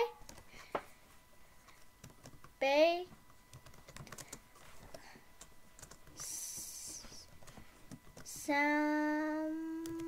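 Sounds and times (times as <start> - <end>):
typing on computer keyboard: 2.0 - 2.5, 3.5 - 6.7, 7.3 - 8.6, 9.8 - 10.0
child humming: 8.4 - 10.0.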